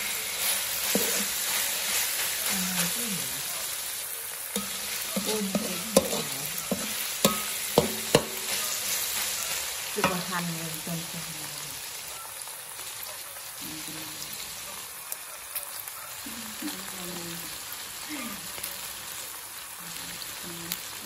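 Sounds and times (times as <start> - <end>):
spatula scraping wok: 0.0 - 11.2
meat sizzling in oil: 0.0 - 21.0
spatula clanking against wok: 4.5 - 8.6, 10.0 - 10.3.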